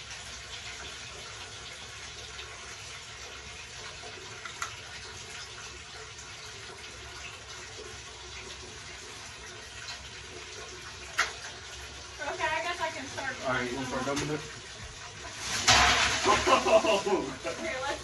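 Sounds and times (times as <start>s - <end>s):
water running from bathtub tap: 0.0s - 18.0s.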